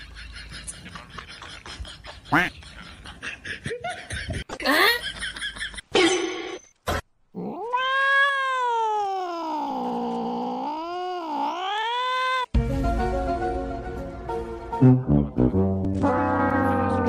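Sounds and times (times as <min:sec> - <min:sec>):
cat yowling: 0:07.4 - 0:12.5.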